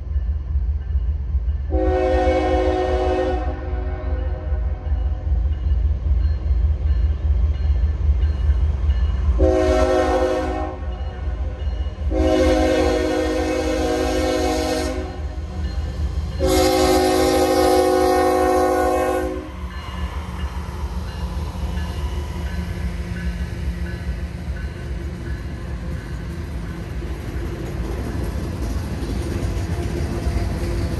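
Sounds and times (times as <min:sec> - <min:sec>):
freight train rumbling: 0:00.0 - 0:30.9
locomotive horn blasts: 0:01.7 - 0:04.6, 0:09.4 - 0:10.9, 0:12.1 - 0:15.3, 0:16.4 - 0:19.6.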